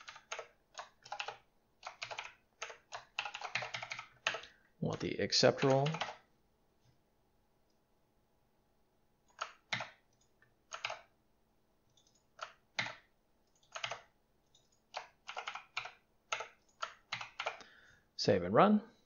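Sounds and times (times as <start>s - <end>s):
typing on a computer keyboard: 0.0s - 6.2s, 9.3s - 11.1s, 11.9s - 17.6s.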